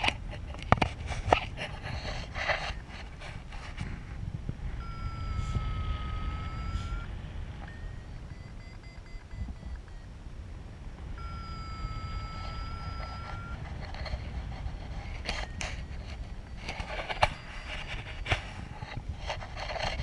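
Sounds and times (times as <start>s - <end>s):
wind rushing over microphone: 0.0s - 20.0s
variometer electronic tones: 4.6s - 10.2s, 11.0s - 20.0s.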